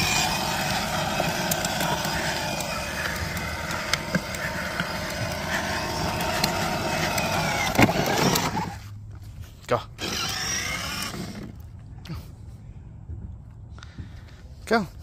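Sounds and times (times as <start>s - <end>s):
electric motor and gearbox whine: 0.0s - 8.9s, 9.9s - 11.8s
plastic wheels rolling on asphalt: 0.0s - 8.9s, 10.0s - 11.7s.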